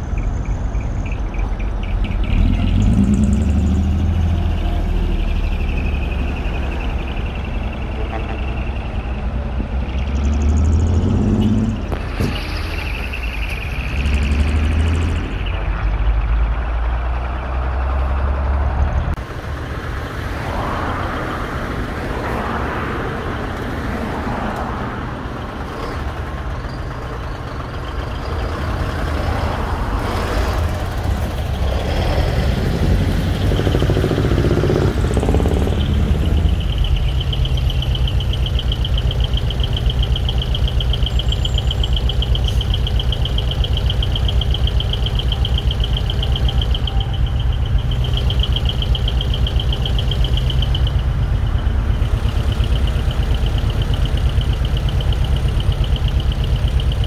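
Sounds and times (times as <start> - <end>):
truck exhaust rumble: 0.0 - 57.0
pulsing high tone: 33.3 - 57.0.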